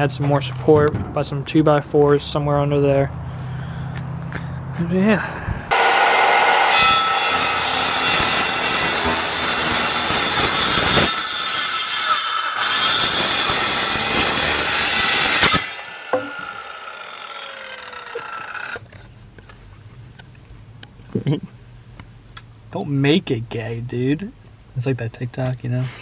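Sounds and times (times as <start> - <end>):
electric saw cutting wood: 5.7 - 18.8
saw blade winding down: 5.7 - 18.8.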